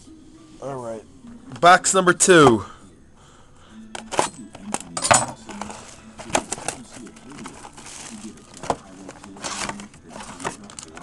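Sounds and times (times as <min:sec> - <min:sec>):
plastic shrink wrap crackling: 0:05.6 - 0:11.0.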